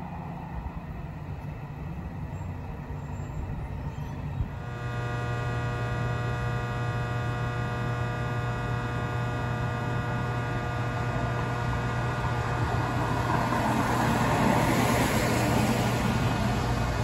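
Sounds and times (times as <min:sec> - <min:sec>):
electrical equipment hum: 0:00.0 - 0:17.0
steady whining tones: 0:00.0 - 0:17.0
wash of noise: 0:12.8 - 0:17.0.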